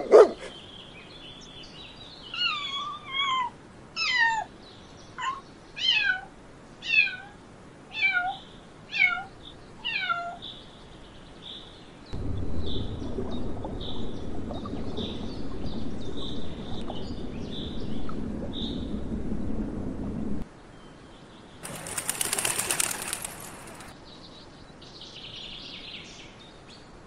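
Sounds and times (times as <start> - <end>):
low rushing of aquarium water: 12.2 - 20.4, 21.6 - 24.0.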